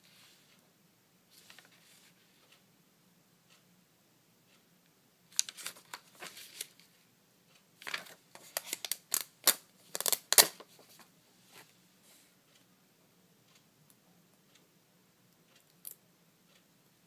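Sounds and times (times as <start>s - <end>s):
paper rustling and crinkling: 5.4s - 6.9s.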